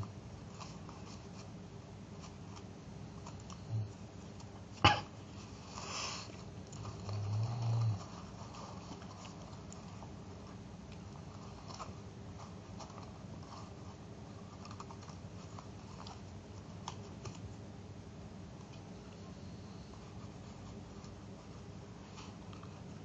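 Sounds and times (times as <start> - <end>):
paper rustling: 0.0 - 4.7, 5.3 - 17.5
steady low hum: 0.0 - 23.0.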